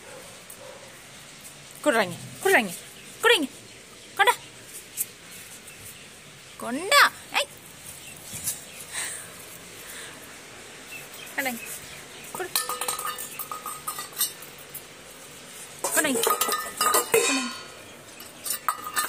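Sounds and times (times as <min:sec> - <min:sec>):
metal dog bowl clanking on concrete: 0:12.3 - 0:14.9, 0:15.8 - 0:19.0.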